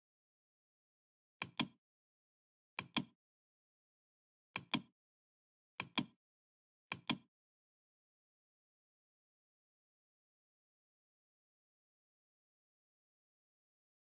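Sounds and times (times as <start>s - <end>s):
computer mouse double clicks: 2.8s - 3.1s, 4.6s - 4.9s, 5.8s - 6.2s, 6.9s - 7.3s.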